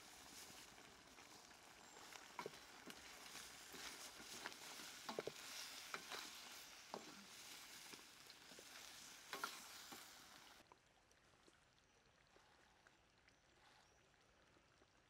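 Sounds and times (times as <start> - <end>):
food sizzling in a wok: 0.0 - 10.6
spatula scraping a pan: 1.9 - 10.4.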